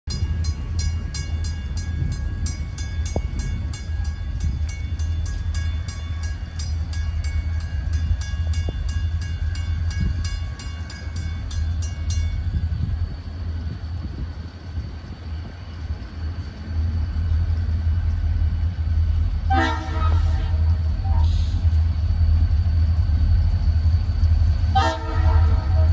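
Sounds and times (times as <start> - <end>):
crossing warning bell ringing: 0.1 - 14.0
low rumble: 0.1 - 25.9.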